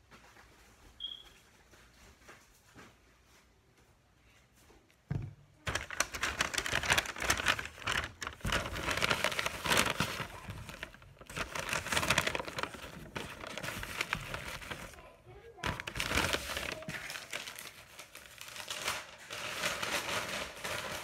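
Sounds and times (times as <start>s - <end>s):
thump: 5.1s - 5.4s
paper bag crinkling: 5.6s - 21.0s.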